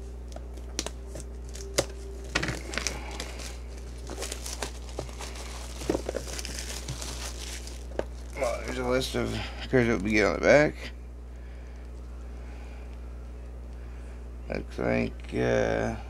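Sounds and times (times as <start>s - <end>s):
low steady hum: 0.0s - 16.0s
plastic wrapping crinkling and tearing: 0.3s - 10.3s.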